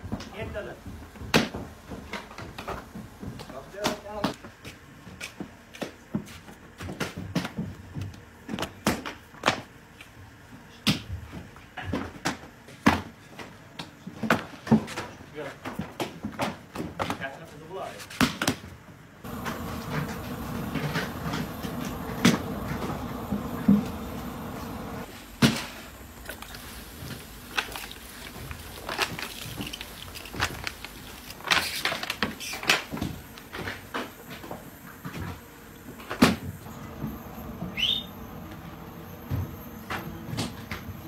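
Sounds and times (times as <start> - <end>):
knocks and clatters of bread-making: 0.0 - 25.8, 26.4 - 37.2
steady hum: 19.2 - 31.4.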